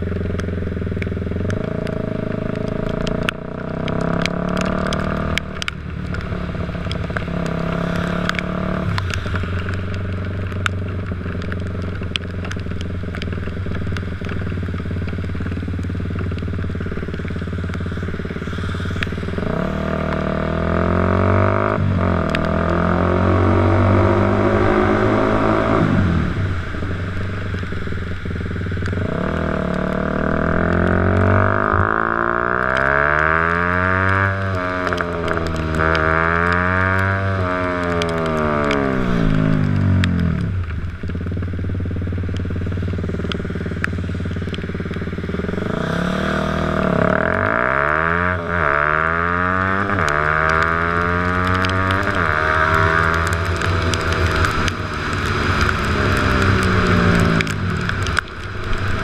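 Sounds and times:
dirt bike engine revving: 0:17.9 - 0:26.6, 0:28.9 - 0:39.6, 0:44.8 - 0:59.0
sharp ticks: 0:49.6 - 0:59.0.

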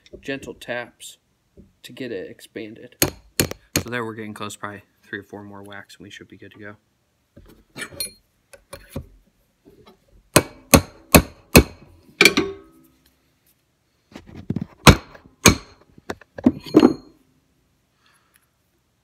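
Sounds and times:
hammer tapping metal punch: 0:03.0 - 0:03.9, 0:10.3 - 0:12.7, 0:14.8 - 0:15.8.

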